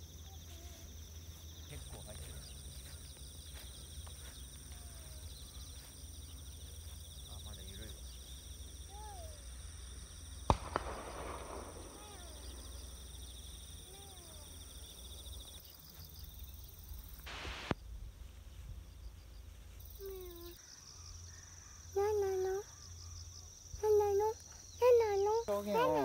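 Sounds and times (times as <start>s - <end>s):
insects trilling: 0.0s - 17.9s, 18.8s - 26.0s
faint falling calls: 1.7s - 15.6s.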